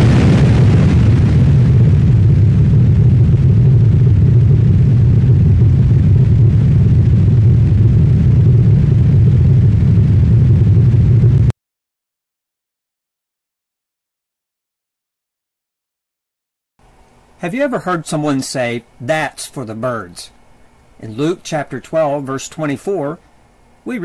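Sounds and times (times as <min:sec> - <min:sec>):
explosion low rumble: 0:00.0 - 0:11.5.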